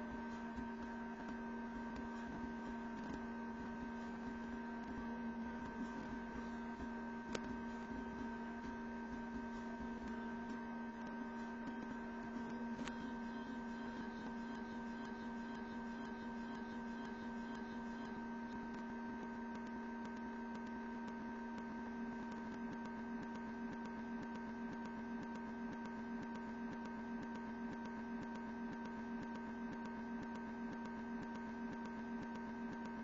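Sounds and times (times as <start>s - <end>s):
electrical hum: 0.0s - 33.0s.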